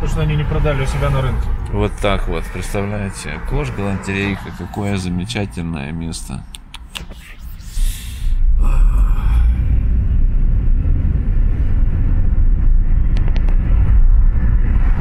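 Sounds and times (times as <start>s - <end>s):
road and engine noise in car: 0.0s - 15.0s.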